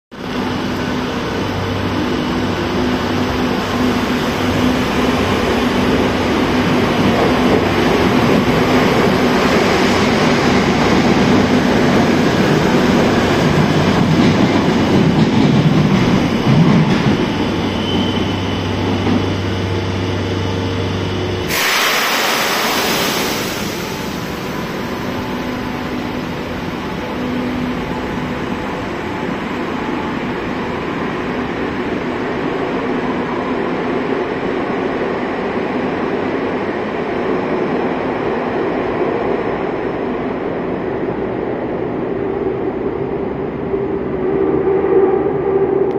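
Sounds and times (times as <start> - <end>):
loud hiss of air: 21.4 - 25.4.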